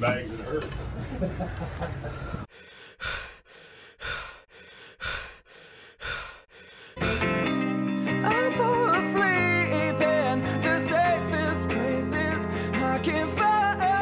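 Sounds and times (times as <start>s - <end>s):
heavy breathing: 2.2s - 8.2s
music: 7.0s - 14.0s.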